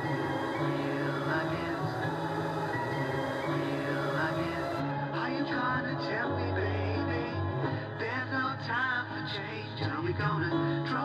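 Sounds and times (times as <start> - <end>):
lo-fi band music: 0.0 - 5.1.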